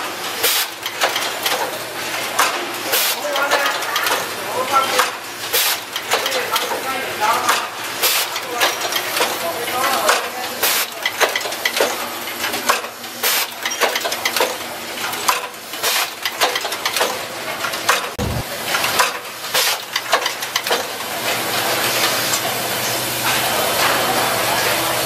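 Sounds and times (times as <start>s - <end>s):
pneumatic hiss: 0.4s - 0.8s, 5.5s - 5.8s
machine clattering clicks: 0.8s - 1.8s, 3.3s - 4.3s, 4.9s - 6.8s, 8.4s - 10.4s, 11.0s - 12.9s, 13.6s - 21.0s
dull low thump: 18.2s - 18.5s.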